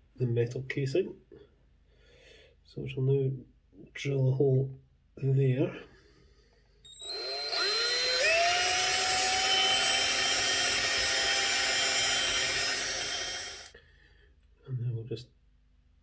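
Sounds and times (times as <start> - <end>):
cordless drill whining: 6.9 - 13.7.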